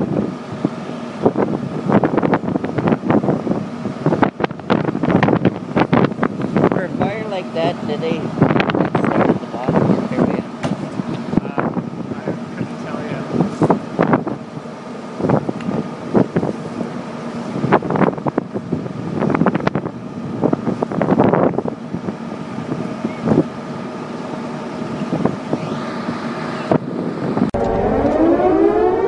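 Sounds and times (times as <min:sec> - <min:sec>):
engine drone: 0:00.0 - 0:29.0
siren wailing: 0:25.5 - 0:26.7, 0:27.6 - 0:29.0.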